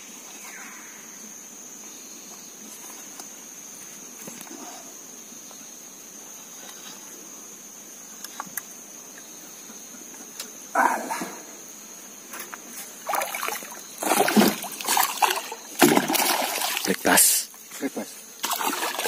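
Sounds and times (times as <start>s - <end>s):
fish splashing at water surface: 13.0s - 17.0s, 18.4s - 19.0s.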